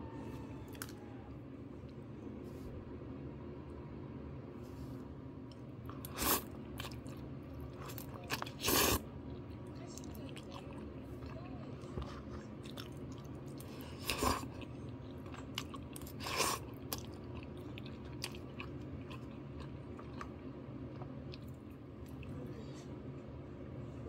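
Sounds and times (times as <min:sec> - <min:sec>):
steady low hum: 0:00.0 - 0:24.0
person chewing food: 0:00.6 - 0:01.0, 0:05.4 - 0:22.4.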